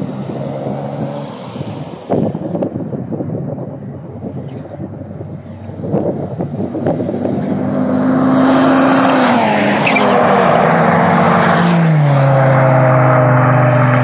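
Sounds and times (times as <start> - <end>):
racing car engines passing: 0.0 - 2.5, 5.4 - 14.0.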